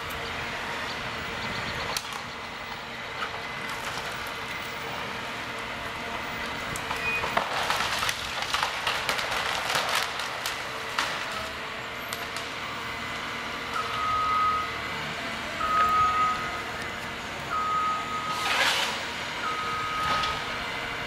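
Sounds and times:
diesel engine and hydraulics running: 0:00.0 - 0:21.0
wood cracking and snapping: 0:03.2 - 0:04.6, 0:06.4 - 0:12.5.

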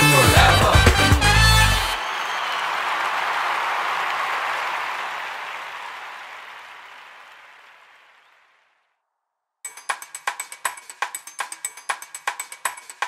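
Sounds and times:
recorded applause: 0:00.0 - 0:09.0
rhythmic percussive clicks: 0:09.7 - 0:13.0.

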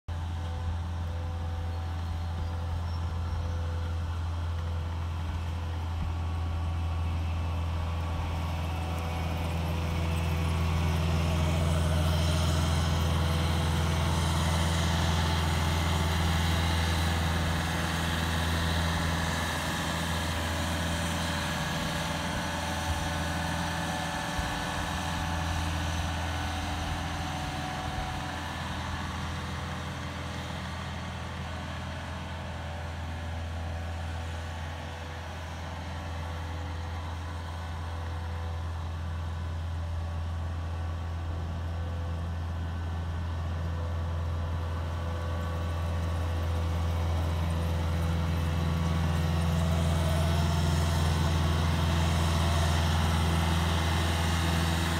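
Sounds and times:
diesel engine under load: 0:00.0 - 0:54.9.

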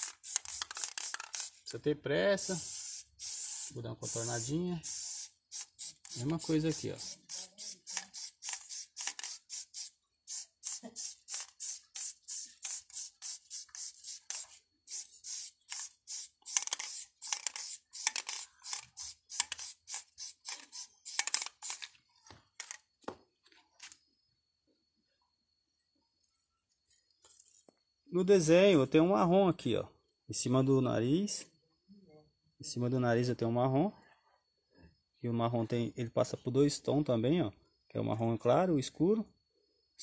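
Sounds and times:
spray-paint can hissing in bursts: 0:00.0 - 0:01.7, 0:02.4 - 0:21.9.

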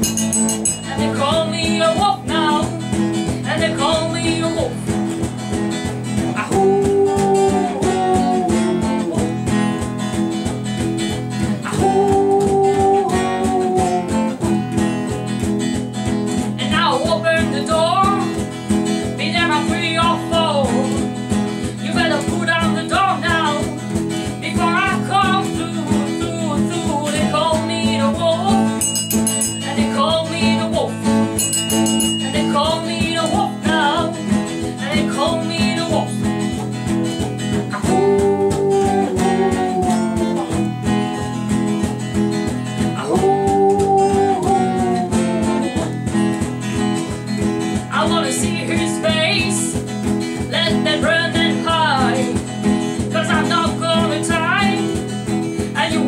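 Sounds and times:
wavering melodic lead line: 0:00.0 - 0:10.0, 0:28.6 - 0:34.3
guitars playing a song: 0:00.0 - 0:56.0.

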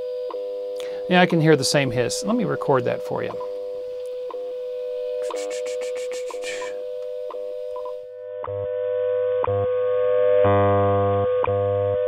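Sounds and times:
steady audio tone: 0:01.1 - 0:08.4
radio hiss: 0:05.1 - 0:06.8.

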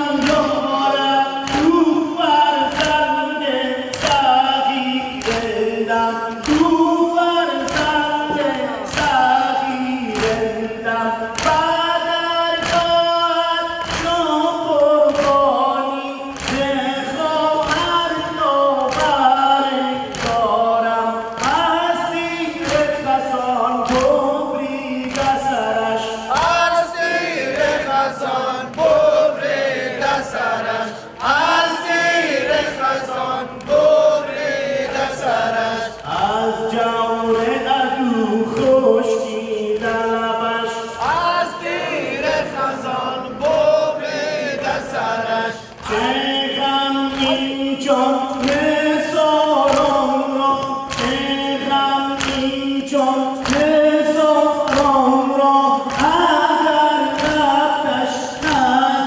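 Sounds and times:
crowd of men singing in unison: 0:00.0 - 0:59.0
man chanting a lament: 0:00.0 - 0:59.0
chest-beating slaps: 0:01.4 - 0:01.8, 0:03.9 - 0:05.7, 0:06.3 - 0:06.8, 0:07.6 - 0:11.8, 0:12.6 - 0:13.1, 0:13.8 - 0:20.7, 0:21.3 - 0:25.5.

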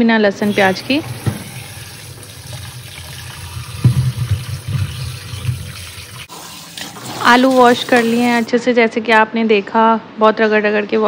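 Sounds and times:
tap running into tub: 0:00.4 - 0:08.5
water splashing and sloshing: 0:00.4 - 0:08.5.

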